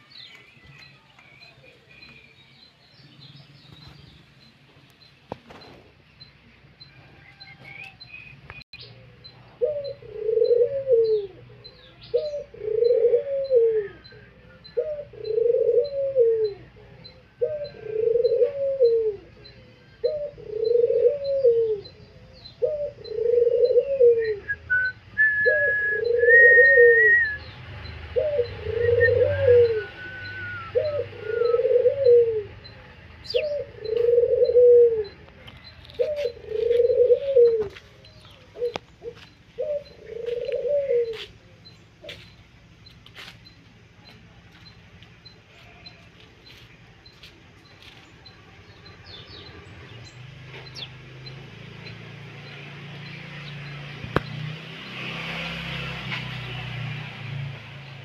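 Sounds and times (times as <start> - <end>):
dove cooing: 8.8 - 42.2
small bird whistles: 28.8 - 32.1.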